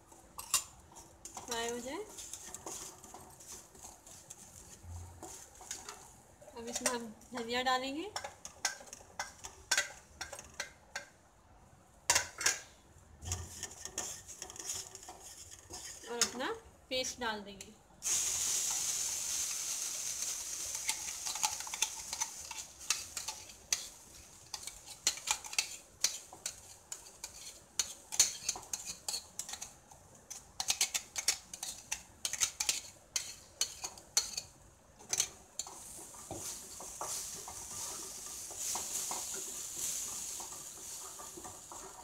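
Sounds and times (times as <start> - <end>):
paste sizzling in hot oil: 0.1 - 7.5, 13.2 - 16.5, 18.0 - 42.0
spatula scraping metal jar: 13.2 - 16.4.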